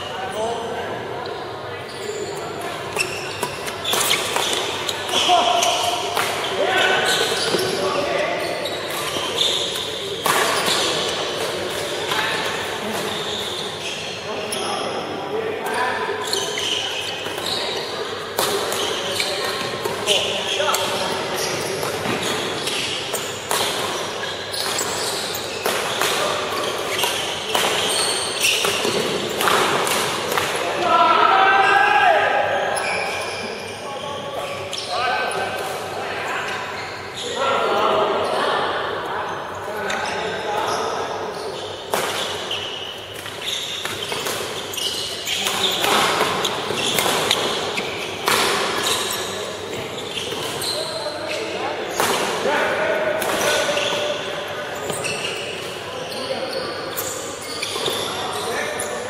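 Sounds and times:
sneaker squeaks: 0.0 - 59.0
rackets hitting shuttlecock: 3.4 - 7.8, 23.2 - 24.0, 25.6 - 30.7, 45.3 - 49.1.

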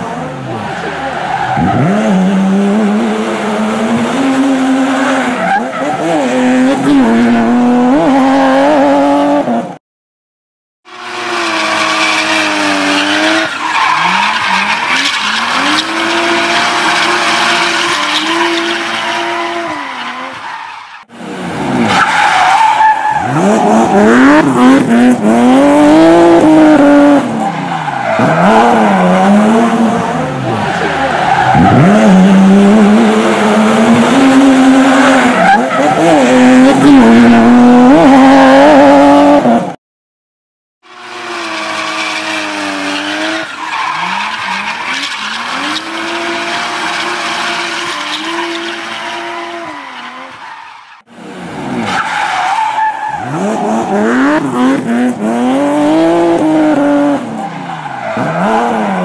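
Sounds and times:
car engines revving: 0.0 - 9.8, 10.9 - 39.8, 40.8 - 59.0
tyre squeal and skidding: 0.4 - 2.2, 4.7 - 6.2, 11.0 - 21.1, 21.8 - 24.9, 25.6 - 29.4, 30.0 - 32.2, 34.2 - 37.0, 41.0 - 51.1, 51.8 - 54.8, 55.9 - 59.0.

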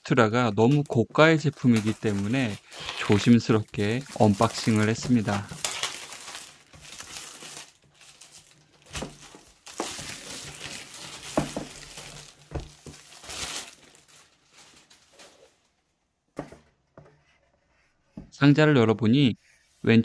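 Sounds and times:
plastic wrap crinkling: 0.3 - 15.8.

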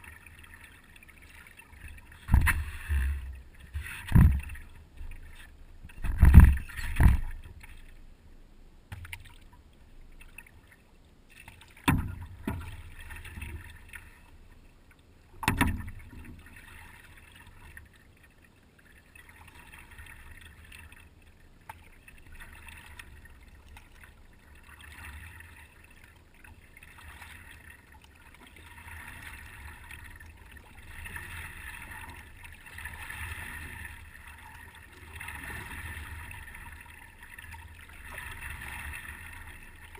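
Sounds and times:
water lapping against paddleboard: 0.0 - 8.0, 15.4 - 39.9
paddleboard thumps: 2.3 - 4.6.

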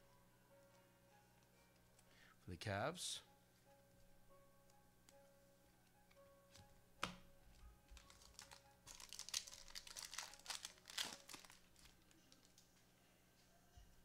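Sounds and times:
foil wrapper crinkling: 7.9 - 12.6.

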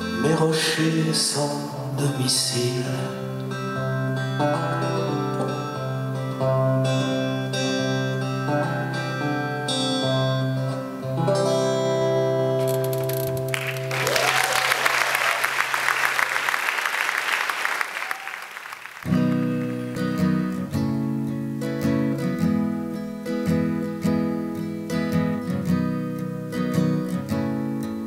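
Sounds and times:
acoustic guitar and keyboard: 0.0 - 13.5, 19.1 - 28.0
strummed acoustic guitar: 0.0 - 13.5, 19.1 - 28.0
audience applause: 13.5 - 20.1.

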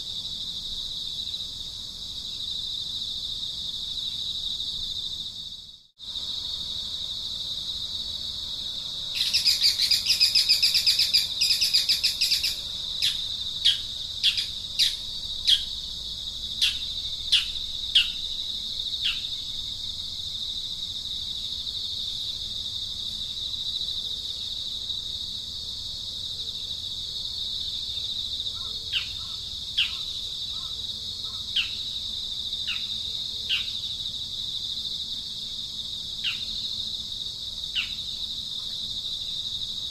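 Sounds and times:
high-pitched insect drone: 2.3 - 25.4.

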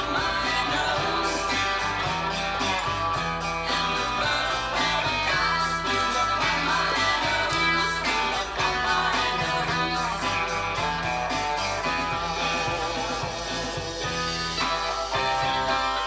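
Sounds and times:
bass line: 0.0 - 16.0
electric guitar: 0.0 - 16.0
rock track: 0.0 - 16.0
steady beat: 0.0 - 16.0.

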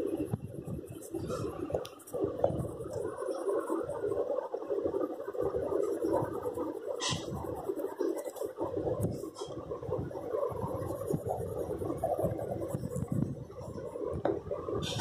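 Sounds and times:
crayon scraping on paper: 5.6 - 8.4, 10.5 - 13.3.

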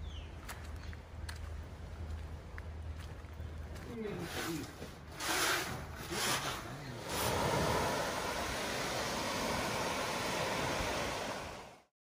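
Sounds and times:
wind: 0.0 - 11.9
surf washing onto beach: 7.0 - 11.9.

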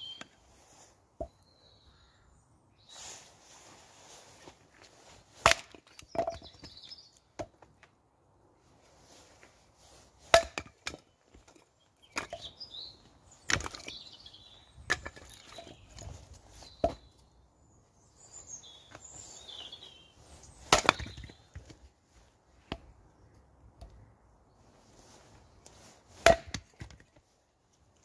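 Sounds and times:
hatchet chopping firewood: 5.4 - 6.8, 10.3 - 12.5, 13.5 - 13.9, 20.6 - 21.7, 26.2 - 27.0.

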